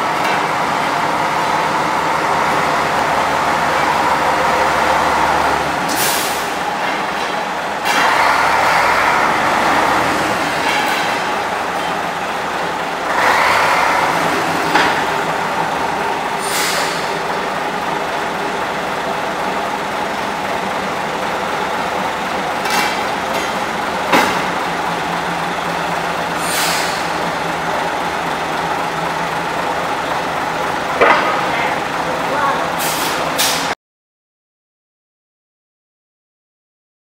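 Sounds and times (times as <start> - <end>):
diesel locomotive engine running: 0.0 - 33.8
air hisses: 16.4 - 17.1, 26.4 - 27.2.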